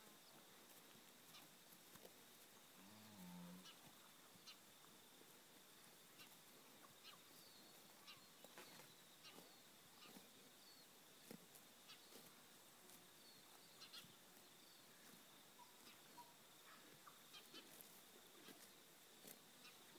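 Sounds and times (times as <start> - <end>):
soft scattered ticks: 0.1 - 19.9
faint bird chirps: 6.1 - 10.9, 13.2 - 17.8.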